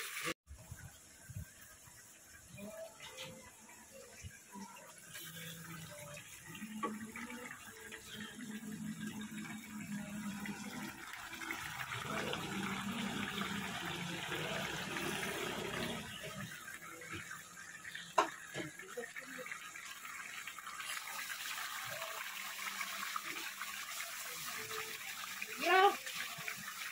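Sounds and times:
water running and splashing: 0:00.0 - 0:26.9.

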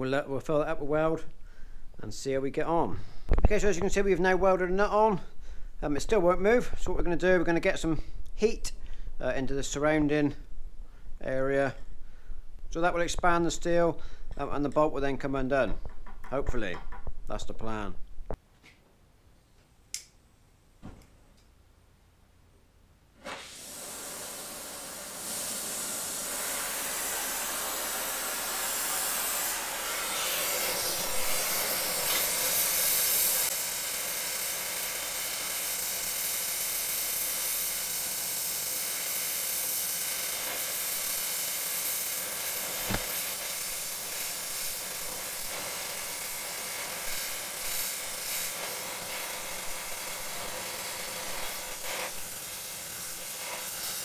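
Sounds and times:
gas torch flame hissing: 0:23.2 - 0:54.0.

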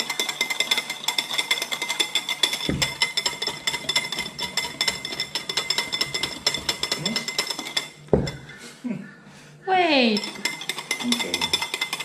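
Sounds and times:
whisk clinking against glass: 0:00.0 - 0:08.6, 0:10.1 - 0:12.0.

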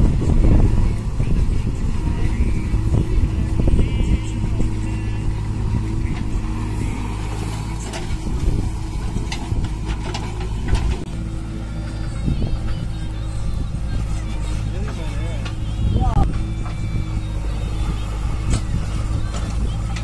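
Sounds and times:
diesel engines running: 0:00.0 - 0:20.0
knocks and clatters: 0:09.0 - 0:11.1.

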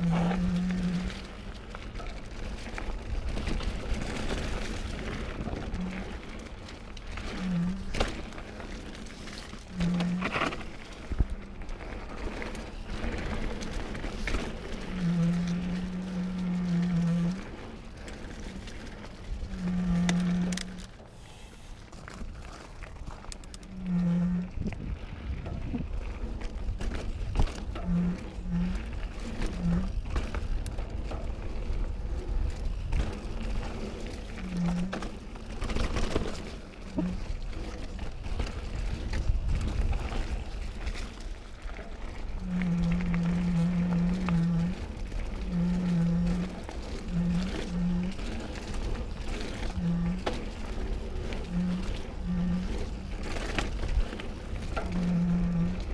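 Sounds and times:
gimbal motor buzzing hum: 0:00.0 - 0:01.3, 0:14.9 - 0:17.5, 0:19.5 - 0:20.9, 0:23.7 - 0:24.8, 0:42.4 - 0:55.9
bike rolling on dirt trail: 0:00.0 - 0:55.9.

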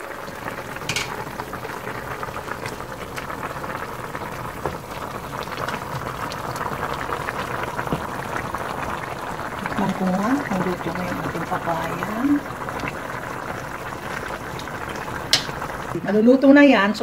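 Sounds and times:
broth boiling and bubbling: 0:00.0 - 0:17.0.

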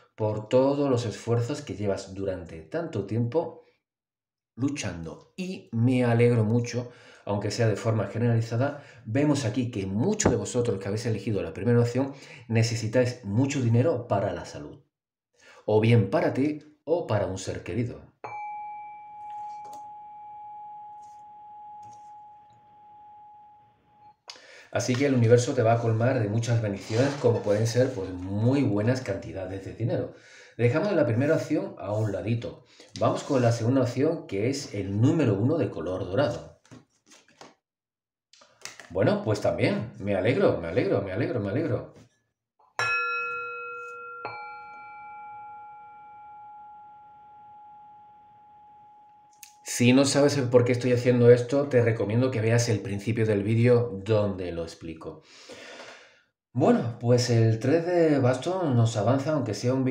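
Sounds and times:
singing bowl struck and ringing: 0:18.2 - 0:23.6, 0:42.8 - 0:49.3.

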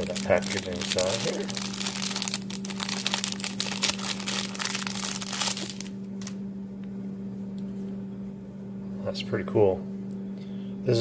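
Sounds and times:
packaging crinkling: 0:00.0 - 0:06.4
low hum: 0:00.0 - 0:11.0.

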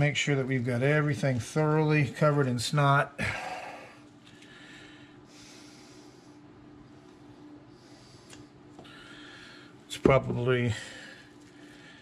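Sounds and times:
faint low hum: 0:00.0 - 0:12.0
man breathing through nose: 0:03.3 - 0:06.5, 0:07.7 - 0:09.8.

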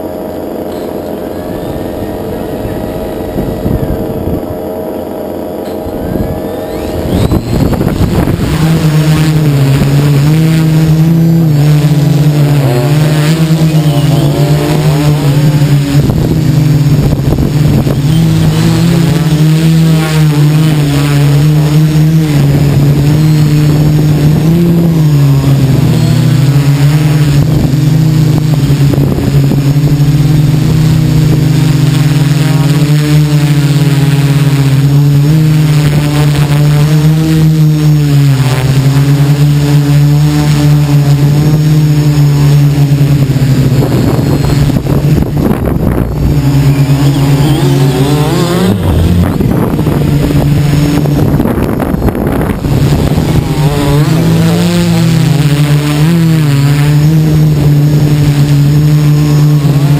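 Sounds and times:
drone motors humming: 0:00.0 - 0:59.9.

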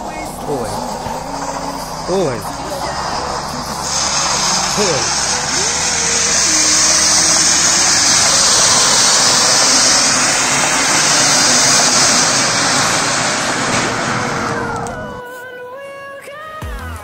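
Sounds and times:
music: 0:00.0 - 0:10.0, 0:14.5 - 0:17.0
firework fountain hissing: 0:00.0 - 0:15.3.

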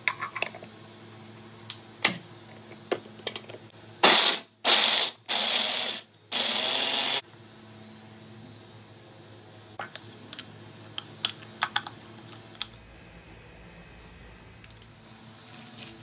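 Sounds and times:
mini chopper motor pulsing: 0:04.2 - 0:07.2.

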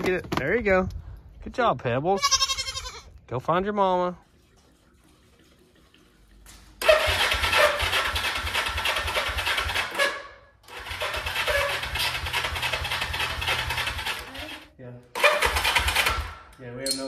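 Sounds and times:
electric starter cranking engine: 0:06.8 - 0:16.5.

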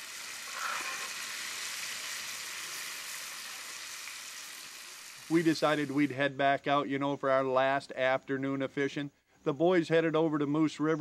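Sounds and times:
fish sizzling in oil: 0:00.0 - 0:06.1.

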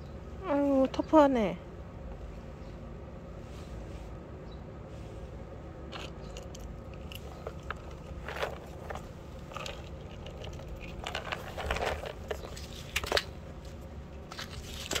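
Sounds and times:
cat crunching dry treats: 0:05.9 - 0:13.4.

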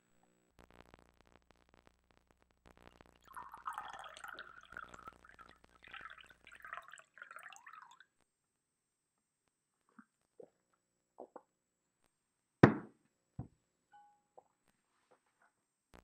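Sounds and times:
wine glugging into a glass: 0:03.2 - 0:08.0.

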